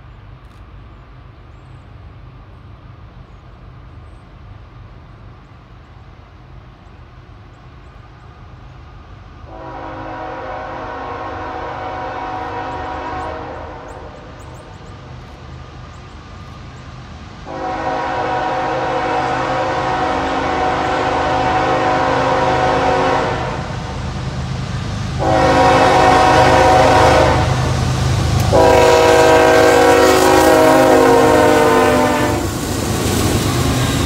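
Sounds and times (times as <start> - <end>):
diesel locomotives rumbling: 0.0 - 34.0
train air horn blasts: 9.5 - 14.3, 17.5 - 23.9, 25.2 - 32.6.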